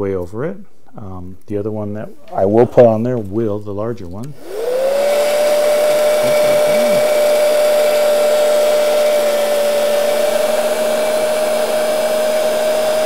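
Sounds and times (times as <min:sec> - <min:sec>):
heat gun fan whine: 0:04.3 - 0:13.0.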